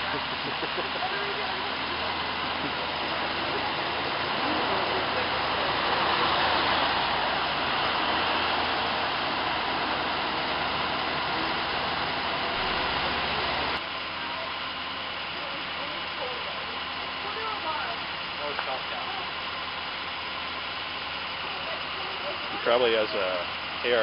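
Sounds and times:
truck driving past: 0:00.0 - 0:13.8
low engine hum: 0:00.0 - 0:24.0.

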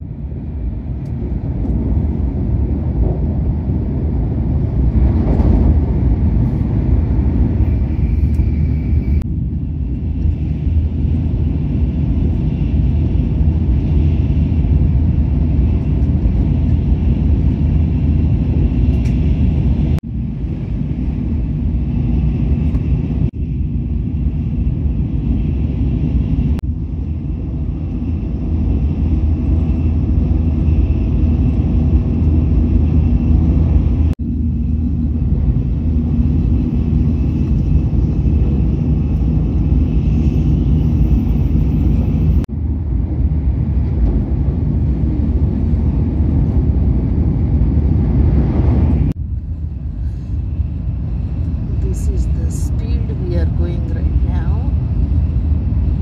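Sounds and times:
train cabin low rumble: 0:00.0 - 0:56.0.

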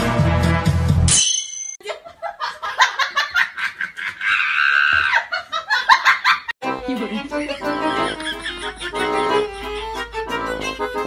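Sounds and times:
person laughing: 0:07.4 - 0:10.3.

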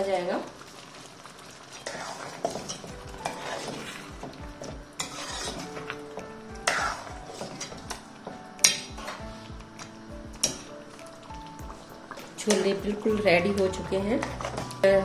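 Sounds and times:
metal spoon stirring thick curry: 0:01.8 - 0:04.0, 0:05.0 - 0:05.8.

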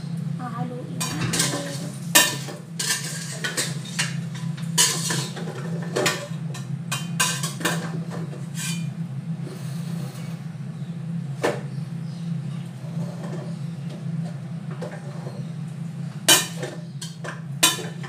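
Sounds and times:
low hum: 0:00.1 - 0:04.8
metal ladle clanking against pot: 0:01.0 - 0:04.2.

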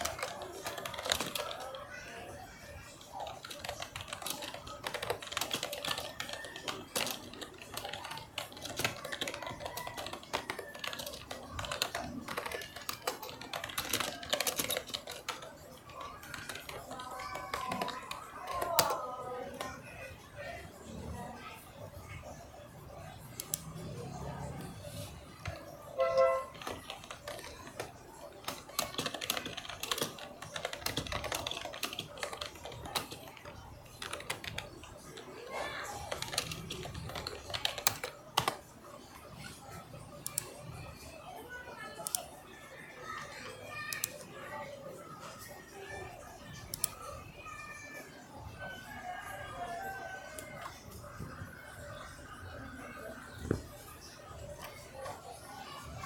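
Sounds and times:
faint voices: 0:00.0 - 0:56.0
rapid irregular clicking and tapping: 0:00.0 - 0:56.0
rapid light clicking and tapping: 0:25.0 - 0:41.1.

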